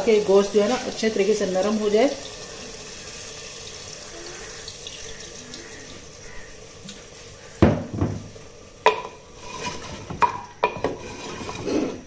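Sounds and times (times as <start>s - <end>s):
wooden spoon knocking clay pot: 7.6s - 9.2s, 10.1s - 11.0s.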